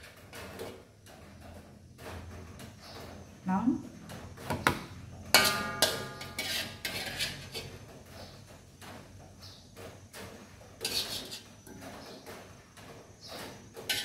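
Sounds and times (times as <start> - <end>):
metal spoon scraping a wok: 5.2 - 8.5, 10.3 - 12.2, 13.2 - 14.0
loud ringing clang: 5.4 - 6.4.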